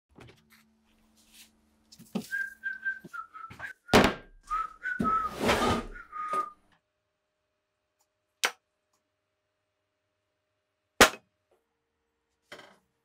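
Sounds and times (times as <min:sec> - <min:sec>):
person whistling a tune: 0:02.3 - 0:06.6.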